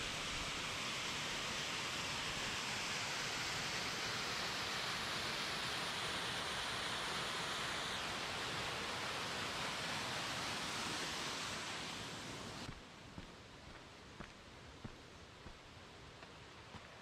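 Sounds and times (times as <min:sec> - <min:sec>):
waterfall rushing: 0:00.0 - 0:12.7.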